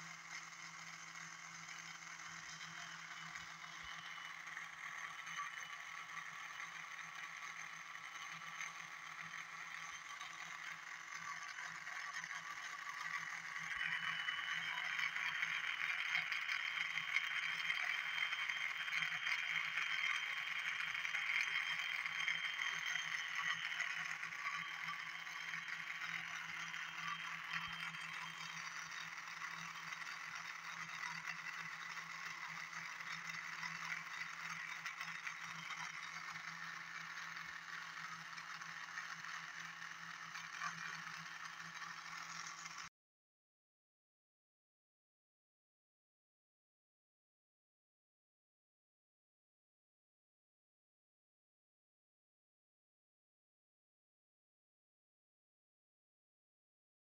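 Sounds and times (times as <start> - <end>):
motor rattling whir: 0.0 - 42.9.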